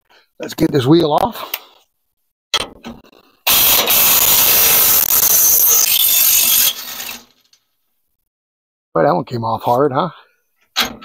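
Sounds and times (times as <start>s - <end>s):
power tool running: 3.5s - 6.8s.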